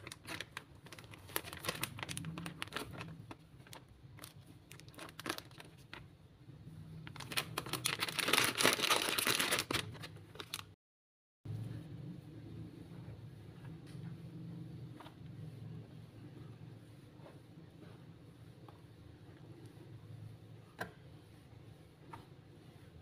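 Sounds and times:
plastic bag crinkling: 0.0s - 6.1s, 7.0s - 10.8s.

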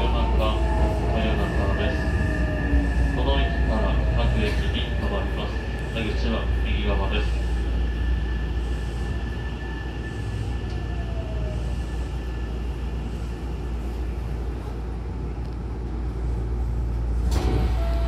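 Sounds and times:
train carriage rumbling: 0.0s - 18.0s
sliding doors opening with air burst: 17.2s - 18.0s.

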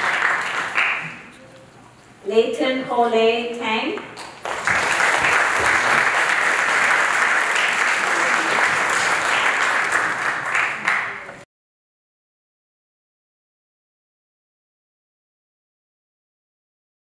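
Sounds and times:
audience applauding: 0.0s - 1.3s, 4.2s - 11.4s.

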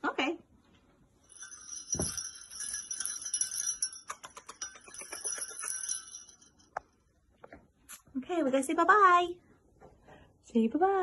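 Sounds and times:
jingle bell jingling: 1.2s - 7.0s.

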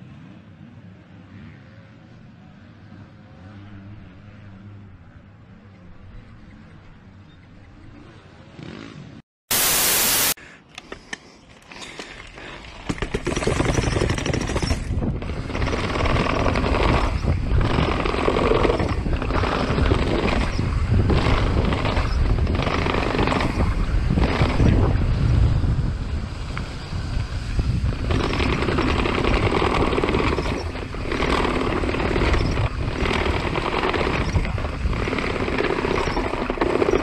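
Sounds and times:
loud burst of hiss: 9.5s - 10.4s
rough tyre noise: 11.7s - 37.0s
mountain bike rattling over steps: 11.8s - 25.1s, 27.0s - 37.0s
wind on microphone: 13.4s - 37.0s.

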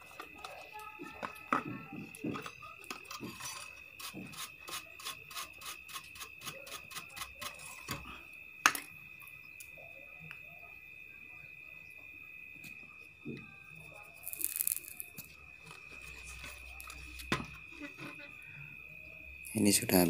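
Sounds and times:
brush scrubbing circuit board: 2.9s - 7.8s.

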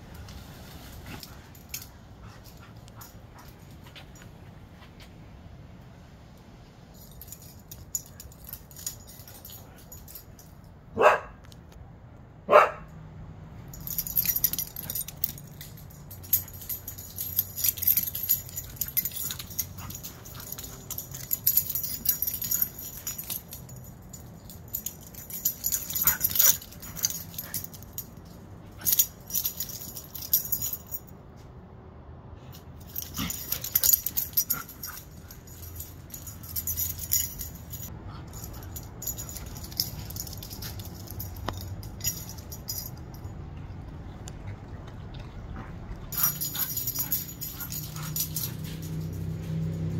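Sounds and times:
collar tags jingling: 0.1s - 4.8s, 6.8s - 11.2s, 13.5s - 31.5s, 32.4s - 44.2s, 45.2s - 49.9s
dogs barking sharply: 11.0s - 11.4s, 12.5s - 13.0s.

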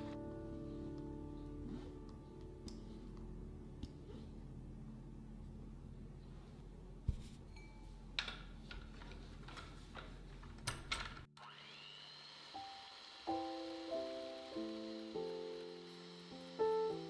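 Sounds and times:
electric hand mixer whine: 11.4s - 17.0s.

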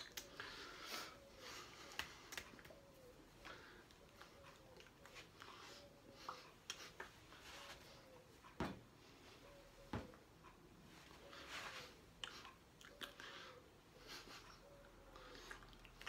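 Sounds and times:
faint rustles: 3.6s - 9.9s.

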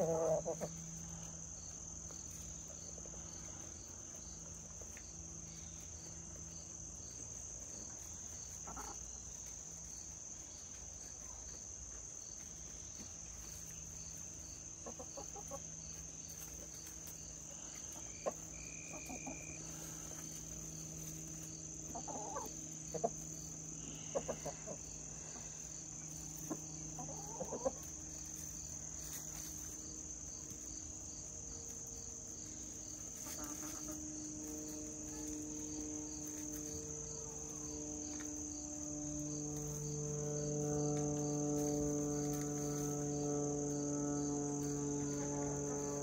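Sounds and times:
hens clucking: 0.0s - 1.1s, 8.1s - 9.6s, 12.9s - 29.8s, 32.4s - 38.3s
insects chirring: 0.0s - 46.0s
propeller plane drone: 19.3s - 27.0s, 27.8s - 46.0s.

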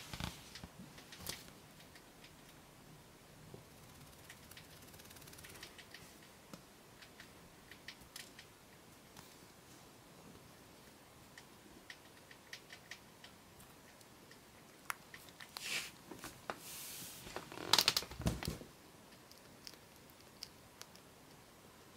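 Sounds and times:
rodent chewing clicks: 1.0s - 2.6s, 3.8s - 6.4s, 7.0s - 8.8s, 11.3s - 15.6s, 19.0s - 21.4s.

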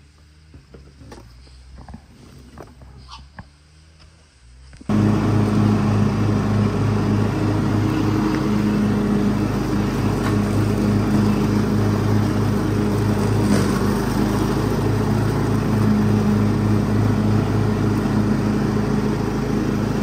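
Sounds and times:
riding lawn mower engine: 0.0s - 20.0s.

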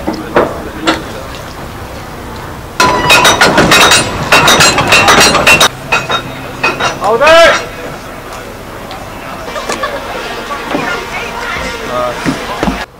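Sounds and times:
windlass gears clicking: 2.4s - 7.7s.

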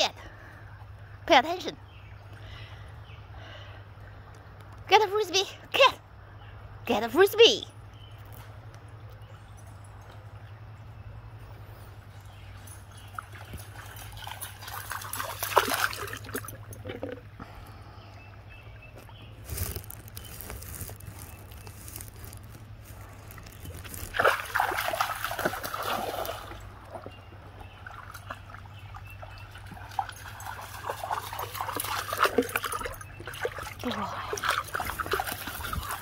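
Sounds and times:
water splashing and sloshing: 8.2s - 36.0s.

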